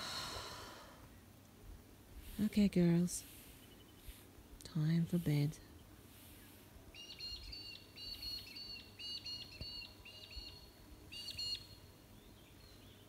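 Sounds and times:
bird chirping: 5.7 - 13.0.

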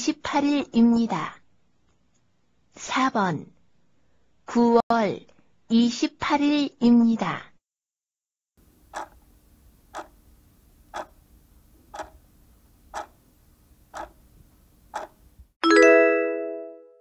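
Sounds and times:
faint steady hum: 8.6 - 15.5
clock ticking: 9.0 - 9.2, 11.0 - 11.2, 12.0 - 12.2, 13.0 - 13.2, 13.9 - 14.2, 15.0 - 15.2.

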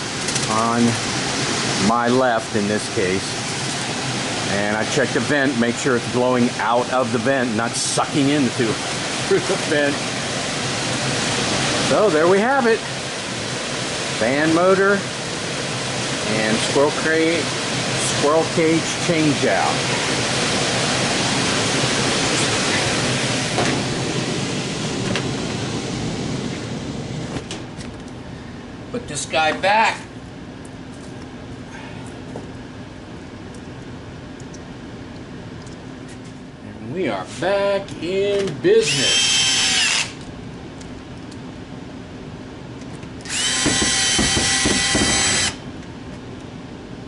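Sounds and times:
blower air rushing: 0.0 - 28.9
steady background noise: 0.0 - 47.0
cordless drill whining: 38.9 - 40.2, 43.2 - 45.6.

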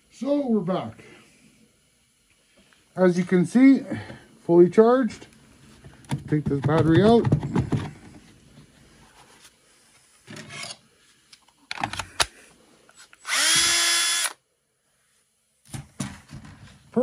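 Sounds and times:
cordless drill spinning: 13.0 - 14.4.

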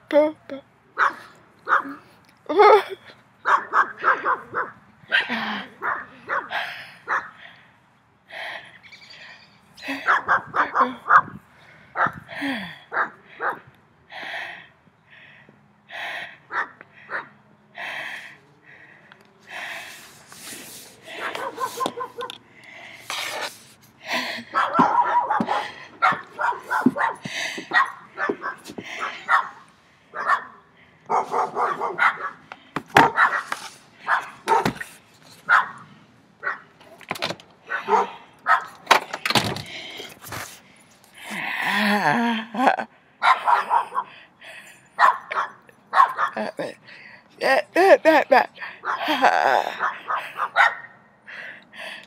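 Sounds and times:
dogs barking: 1.0 - 2.0, 3.4 - 7.5, 9.8 - 12.2, 12.9 - 13.7, 16.5 - 17.4, 21.1 - 22.4, 24.4 - 35.8, 36.4 - 36.8, 37.7 - 38.9, 43.2 - 44.2, 44.9 - 46.6, 48.6 - 51.0
breathy exhalations: 11.5 - 36.1, 37.7 - 43.2, 51.2 - 52.0.

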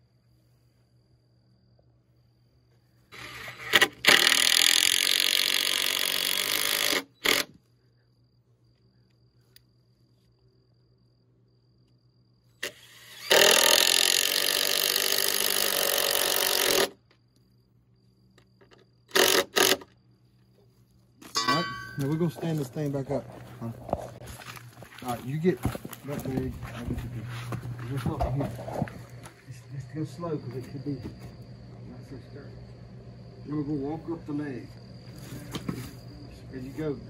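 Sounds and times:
cordless drill drilling into wood: 3.2 - 7.5, 12.6 - 17.0, 19.1 - 19.9.

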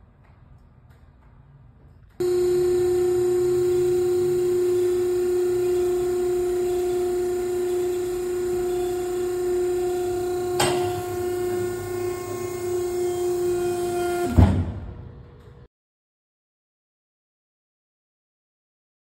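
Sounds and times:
electric motor and hydraulic pump humming: 2.2 - 15.7.

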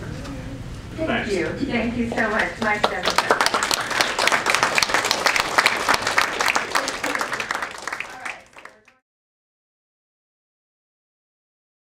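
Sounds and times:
audience applauding: 2.3 - 9.0.

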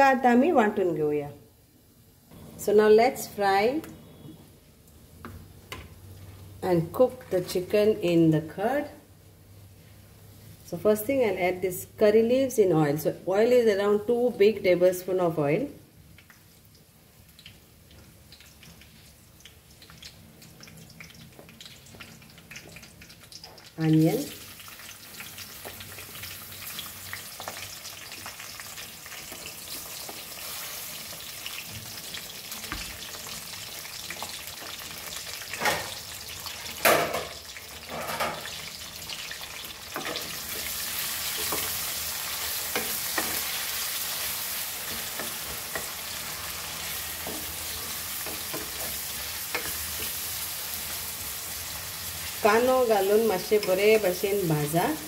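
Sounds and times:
leaves sizzling in hot oil: 15.5 - 55.0.

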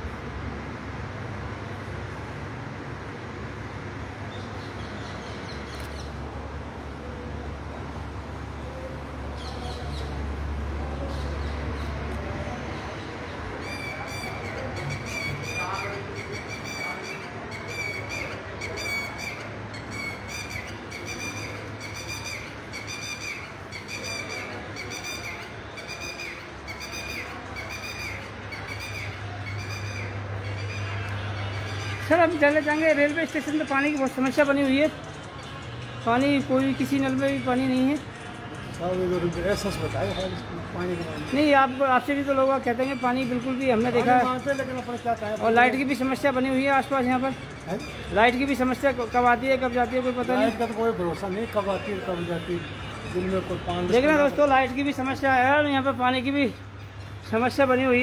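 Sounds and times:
bird calling: 12.8 - 35.6, 36.8 - 58.0.

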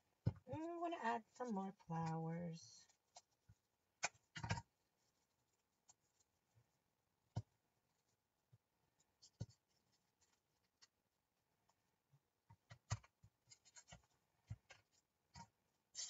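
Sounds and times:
paper craft clicks and rustles: 12.6 - 15.6.

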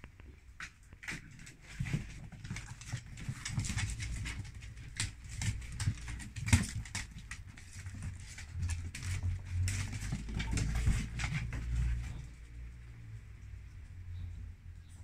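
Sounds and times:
dog claws clicking on wooden floor: 0.6 - 12.2.

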